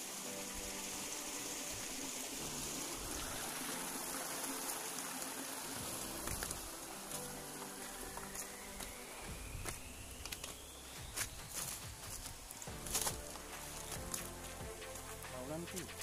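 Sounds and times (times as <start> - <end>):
rocky stream running: 0.0 - 16.0
footsteps over rocks: 5.8 - 16.0.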